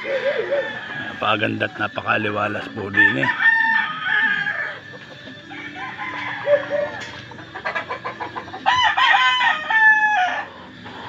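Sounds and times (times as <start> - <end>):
rooster crowing loudly: 0.0 - 1.5, 2.9 - 4.8, 5.5 - 7.0, 8.7 - 10.5
faint calls of other roosters: 0.0 - 11.0.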